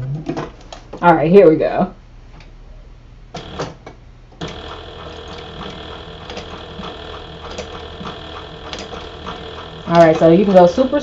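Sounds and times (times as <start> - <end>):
sewing machine running: 3.4 - 3.8, 4.4 - 11.0.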